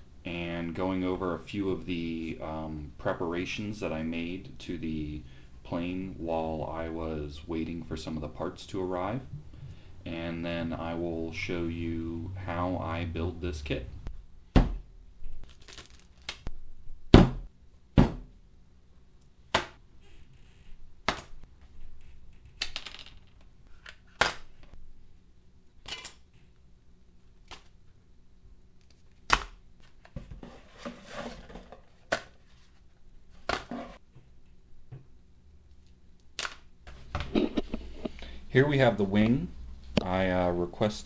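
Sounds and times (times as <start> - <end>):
plastic bags rustling: 15.4 - 16.4.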